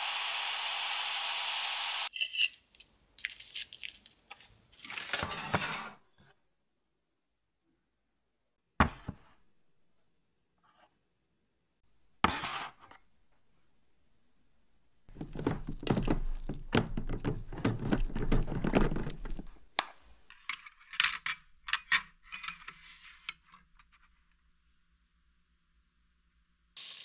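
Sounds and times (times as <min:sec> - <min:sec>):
dishes and utensils clinking: 0:17.1 - 0:23.5.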